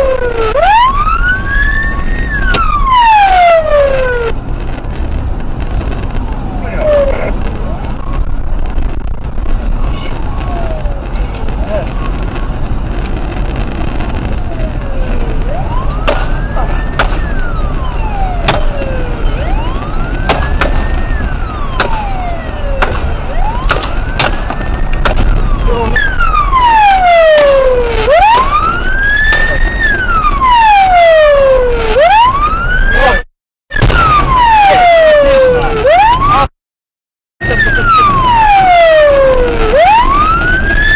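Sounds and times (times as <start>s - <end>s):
car driving at highway speed: 0.0s - 36.5s, 37.4s - 40.9s
police siren wailing: 0.0s - 36.5s, 37.4s - 40.9s.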